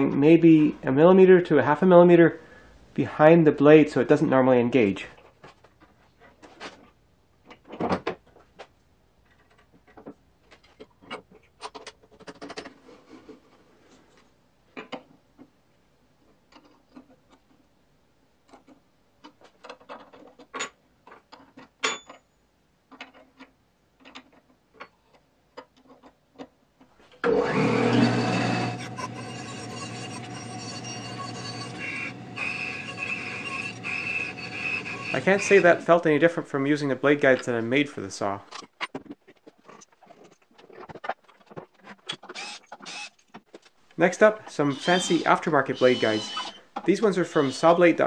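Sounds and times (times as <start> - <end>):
metal parts clicking and knocking: 9.2 - 12.8, 18.5 - 22.3, 22.9 - 26.6
bandsaw running: 27.2 - 35.8, 44.6 - 48.0.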